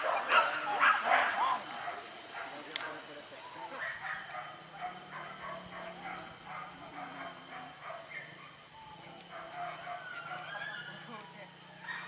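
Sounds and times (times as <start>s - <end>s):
dog yelping: 0.0s - 2.5s
dogs barking: 0.0s - 11.1s, 11.8s - 12.0s.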